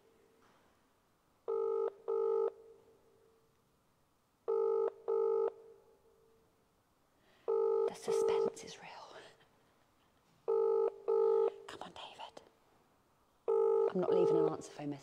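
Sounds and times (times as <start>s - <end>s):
telephone ringback tone: 1.5s - 2.5s, 4.5s - 5.5s, 7.5s - 8.4s, 10.5s - 11.5s, 13.5s - 14.6s.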